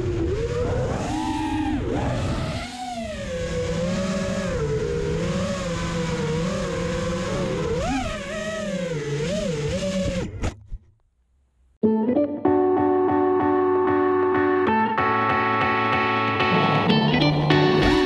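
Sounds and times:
quadcopter motors whining: 0:00.0 - 0:10.5.

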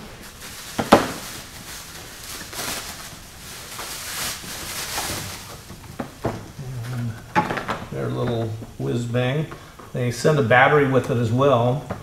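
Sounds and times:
plastic packaging crinkling: 0:00.0 - 0:08.0.

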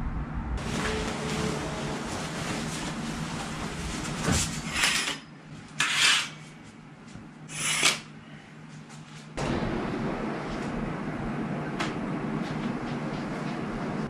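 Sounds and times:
curtains swishing along rail: 0:00.6 - 0:05.0.

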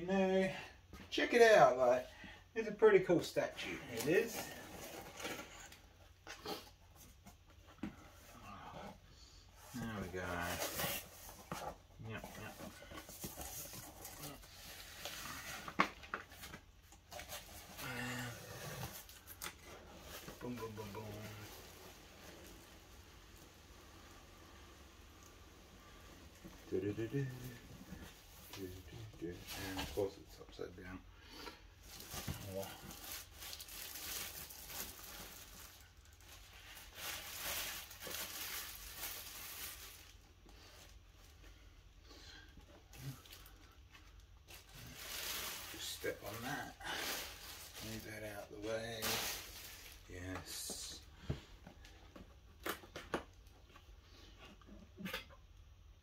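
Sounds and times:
plastic bag crinkling: 0:31.9 - 0:40.2, 0:43.0 - 0:50.1.

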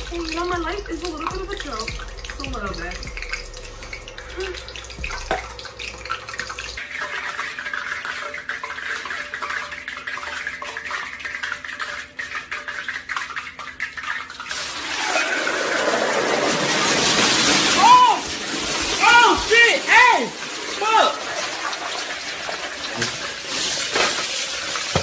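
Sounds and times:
hot oil sizzling and crackling: 0:00.0 - 0:25.0.

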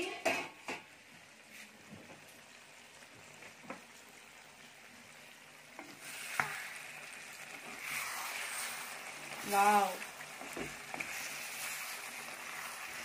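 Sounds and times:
curry sizzling in a pot: 0:00.0 - 0:13.0
wooden spatula stirring and scraping: 0:05.8 - 0:13.0.

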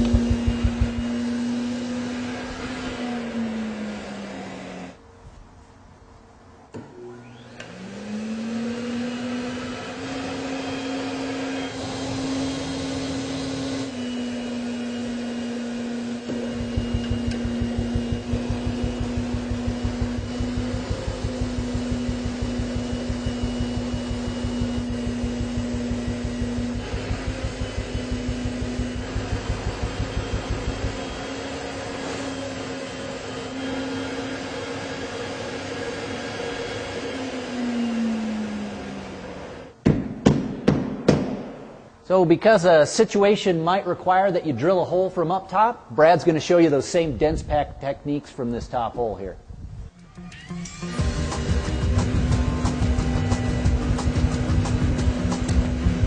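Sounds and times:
machine rapid pulsing: 0:00.0 - 0:01.4, 0:16.3 - 0:32.0
insulation blowing machine running: 0:00.0 - 0:05.0, 0:06.7 - 0:39.8, 0:49.4 - 0:56.0.

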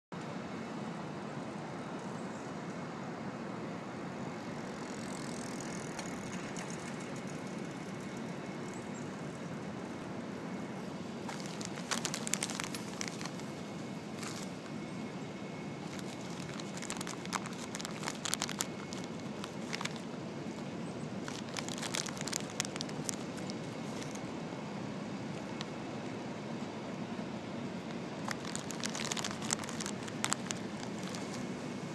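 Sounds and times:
street background noise: 0:00.2 - 0:31.9
nuts being crunched: 0:11.2 - 0:13.5, 0:15.8 - 0:24.3, 0:28.2 - 0:31.6.

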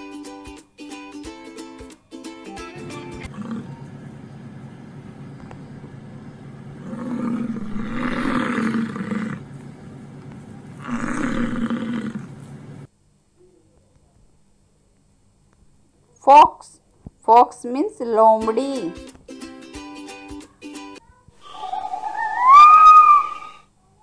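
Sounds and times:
bison bellowing: 0:03.2 - 0:03.9, 0:06.8 - 0:09.6, 0:10.8 - 0:12.4.

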